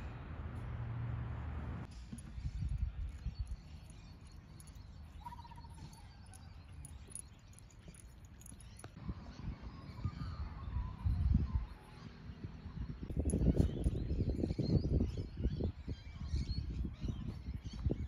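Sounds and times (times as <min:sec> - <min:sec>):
wind rumble on microphone: 0:02.0 - 0:04.0, 0:08.9 - 0:18.0
bird trill: 0:02.2 - 0:09.0.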